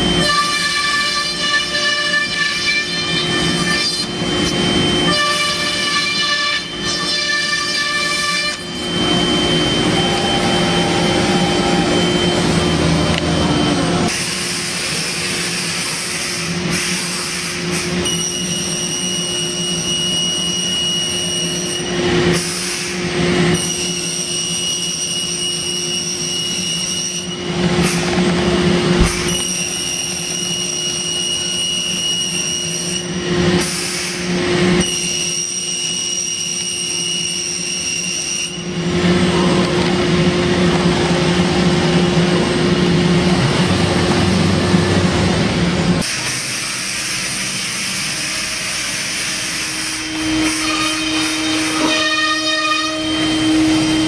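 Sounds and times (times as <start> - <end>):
machine hum: 0.0 - 16.8, 38.6 - 54.0
router spindle whine: 0.0 - 46.4, 47.1 - 54.0.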